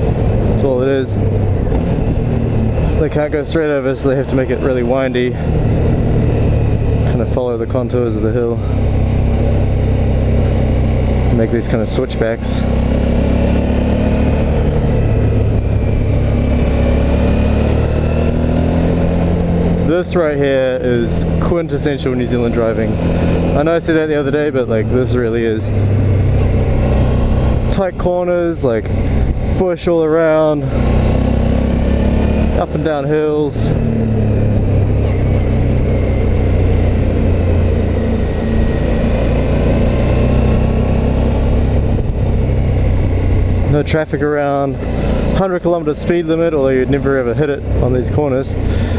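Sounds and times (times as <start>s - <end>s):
motorcycle engine running: 0.0s - 48.9s.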